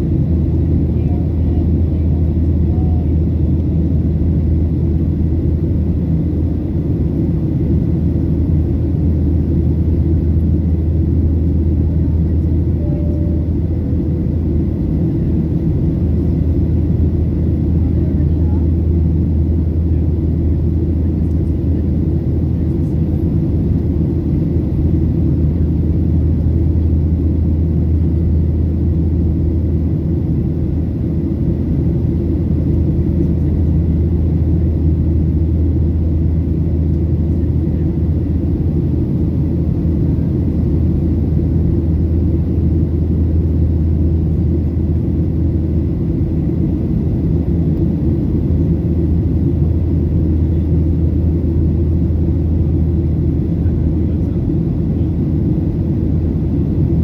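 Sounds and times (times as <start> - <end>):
airplane cabin low rumble: 0.0 - 57.0
faint high whine: 11.2 - 16.5.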